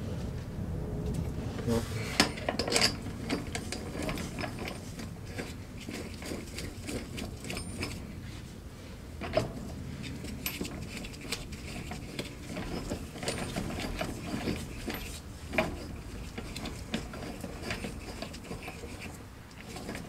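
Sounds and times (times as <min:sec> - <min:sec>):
low rumble: 0:00.0 - 0:04.1.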